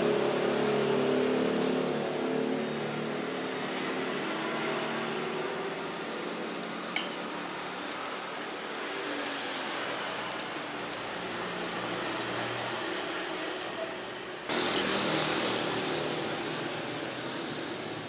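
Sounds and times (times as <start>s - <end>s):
passing vehicle engine: 0.0s - 6.6s, 14.5s - 18.0s
steady traffic hum: 0.0s - 18.0s
cutlery clinking on a plate: 7.0s - 7.6s.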